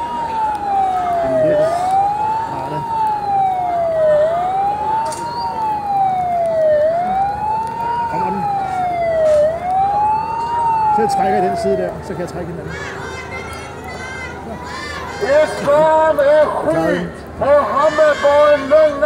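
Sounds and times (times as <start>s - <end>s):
siren wailing: 0.0s - 12.5s.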